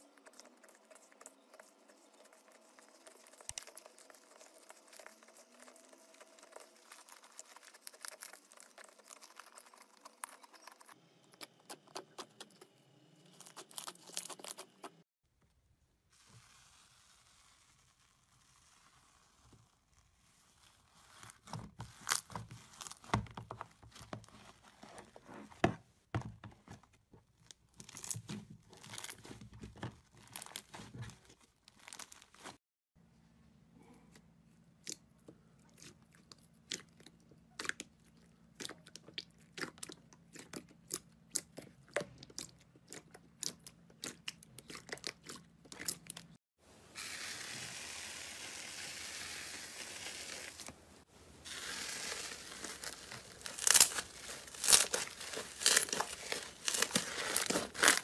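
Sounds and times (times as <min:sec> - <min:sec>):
slime squished by hand: 0:34.8 - 0:46.4, 0:51.5 - 0:58.0.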